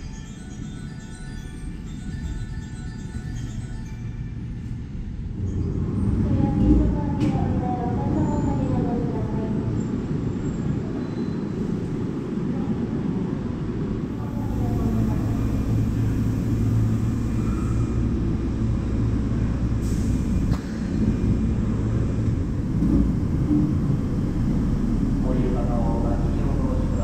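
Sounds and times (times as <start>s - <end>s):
subway train rumble: 0.0s - 27.0s.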